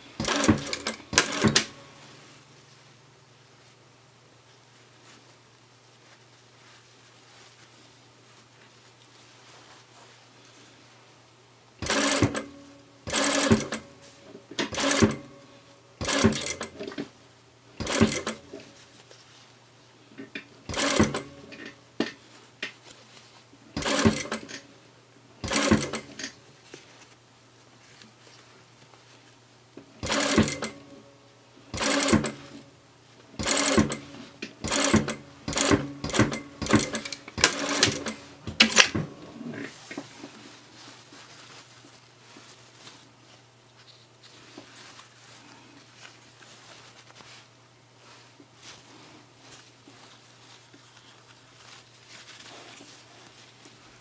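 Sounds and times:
sewing machine stitching: 0.2s - 1.8s, 11.8s - 13.9s, 14.6s - 15.4s, 16.0s - 17.1s, 17.8s - 18.6s, 20.7s - 21.7s, 23.8s - 24.6s, 25.4s - 26.4s, 30.0s - 30.9s, 31.7s - 32.6s, 33.4s - 39.7s.

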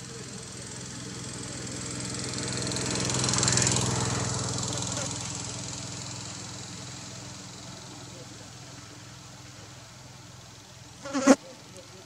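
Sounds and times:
low engine hum: 0.0s - 12.0s
motor vehicle passing by: 0.0s - 12.0s.

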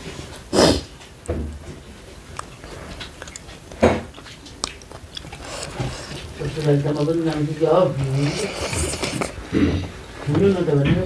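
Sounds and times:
person chewing food: 1.9s - 10.2s
loud short mouth noises: 8.1s - 9.8s.

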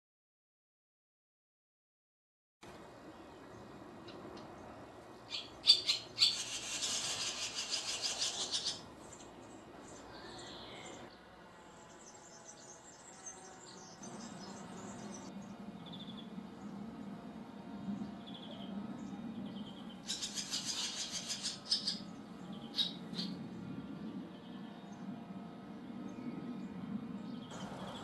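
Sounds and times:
swallow twittering song: 3.1s - 16.8s, 17.9s - 25.2s.

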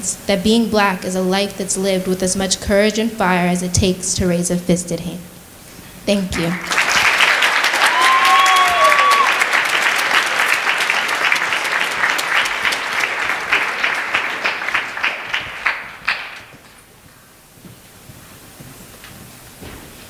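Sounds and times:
audience applause: 6.4s - 16.7s
crowd whooping: 6.5s - 16.4s.

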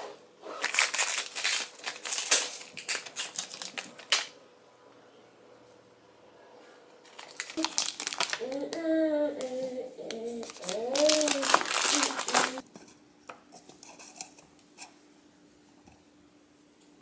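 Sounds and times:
plastic food packaging crinkling: 0.6s - 4.4s, 7.1s - 12.6s.

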